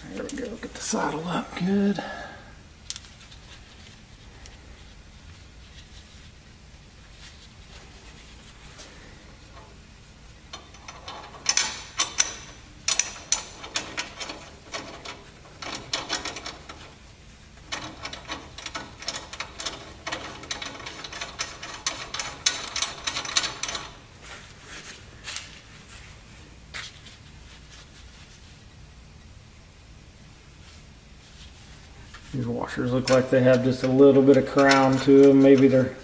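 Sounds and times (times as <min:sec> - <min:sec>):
metal hardware clinking: 0:10.5 - 0:17.0, 0:17.7 - 0:24.0, 0:32.9 - 0:36.0.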